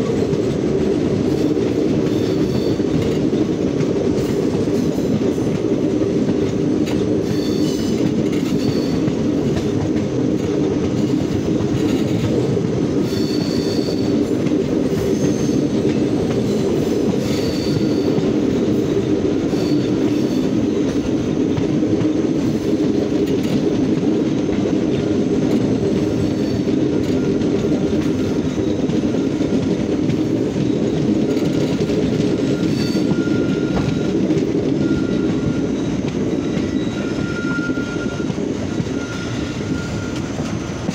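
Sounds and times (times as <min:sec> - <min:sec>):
train wheels rumbling on track: 0:00.0 - 0:40.9
high wheel squeaks: 0:07.2 - 0:09.1, 0:13.0 - 0:14.2, 0:14.9 - 0:15.8, 0:16.4 - 0:18.2, 0:18.8 - 0:20.6, 0:26.0 - 0:29.6, 0:30.3 - 0:40.9.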